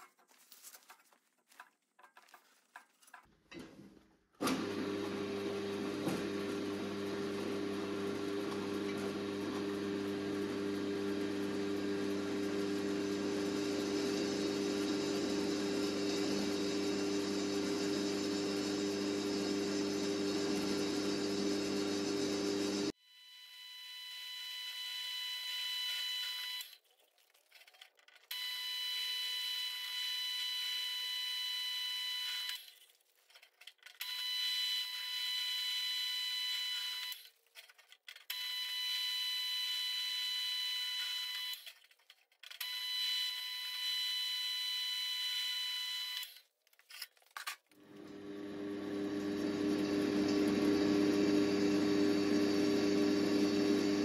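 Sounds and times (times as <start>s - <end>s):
drill press motor hum: 4.4s - 23.0s, 47.8s - 54.0s
drill high whine: 9.9s - 26.6s, 47.9s - 54.0s.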